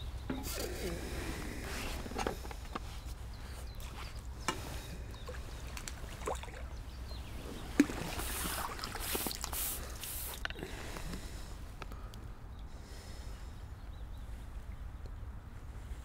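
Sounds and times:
fish splashing in water: 0:05.2 - 0:06.8, 0:07.5 - 0:10.4.

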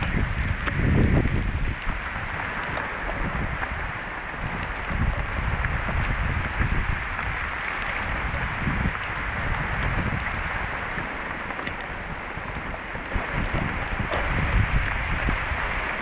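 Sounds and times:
faint clicks: 0:00.0 - 0:06.1, 0:11.0 - 0:14.9
wind buffeting microphone: 0:00.0 - 0:16.0.

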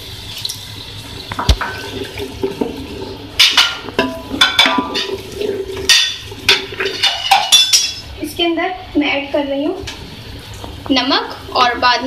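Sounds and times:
spatula scraping metal pot: 0:03.4 - 0:07.8.

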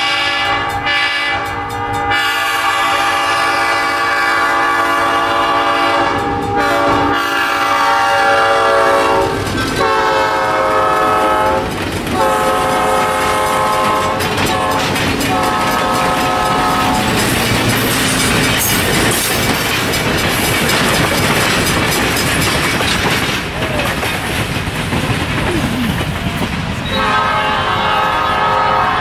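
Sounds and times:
locomotive air horn blasts: 0:00.0 - 0:17.2, 0:26.8 - 0:29.0
steel wheels clattering over rail joints: 0:09.2 - 0:27.2.

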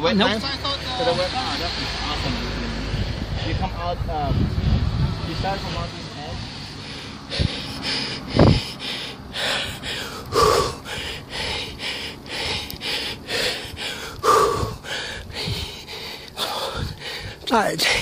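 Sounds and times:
cyclist breathing hard: 0:00.8 - 0:05.1, 0:06.4 - 0:18.0
loud gasps: 0:06.7 - 0:18.0.

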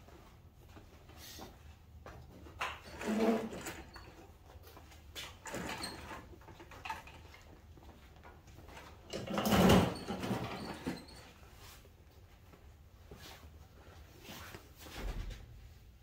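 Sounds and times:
clothing rustling: 0:11.4 - 0:15.7.

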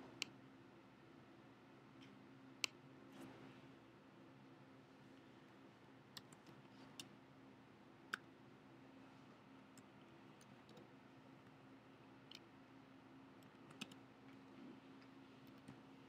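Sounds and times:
low steady hum: 0:00.0 - 0:16.0
computer mouse clicks: 0:00.1 - 0:00.4, 0:02.0 - 0:02.8, 0:06.1 - 0:07.2, 0:09.7 - 0:11.0, 0:12.2 - 0:12.5, 0:13.4 - 0:14.4, 0:15.0 - 0:15.8.

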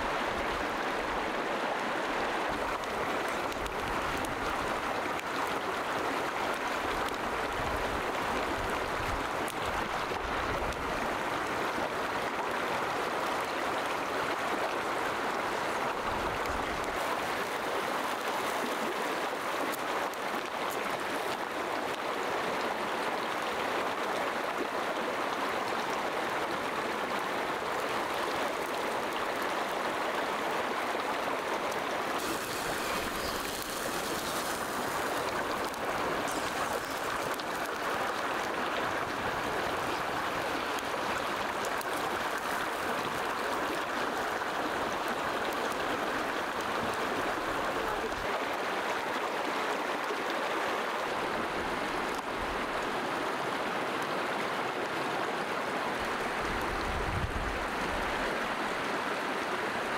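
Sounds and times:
stream flowing over rocks: 0:00.0 - 0:59.9.

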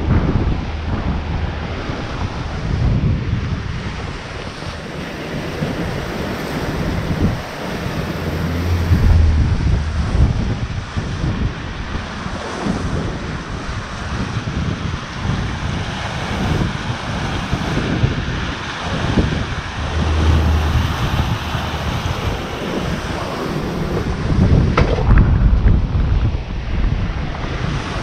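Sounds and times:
water rushing in boat wake: 0:00.0 - 0:28.0
wind buffeting microphone: 0:00.0 - 0:28.0.

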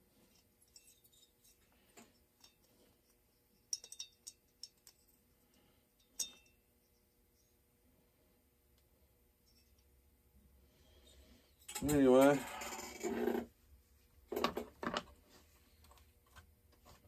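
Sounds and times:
metal engine parts clinking: 0:03.7 - 0:05.1.

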